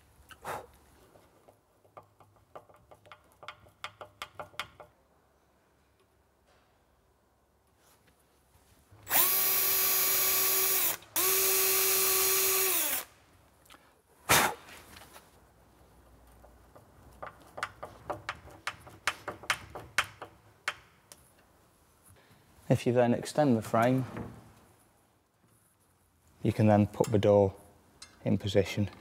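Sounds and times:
power drill drilling: 0:09.1 - 0:13.1
screwdriver driving a screw: 0:09.1 - 0:13.1.

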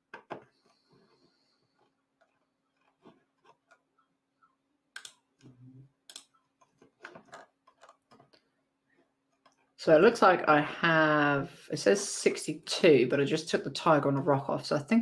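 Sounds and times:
computer mouse and keyboard clicks: 0:05.0 - 0:08.4.

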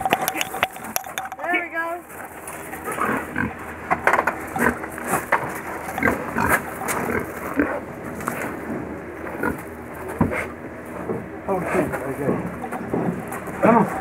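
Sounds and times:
pig grunting: 0:02.9 - 0:03.7, 0:04.5 - 0:08.0, 0:09.3 - 0:09.7.

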